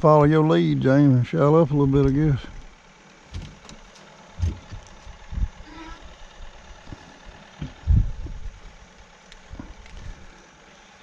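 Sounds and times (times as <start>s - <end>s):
dull low thumps in a boat: 4.4s - 5.5s, 6.8s - 8.6s.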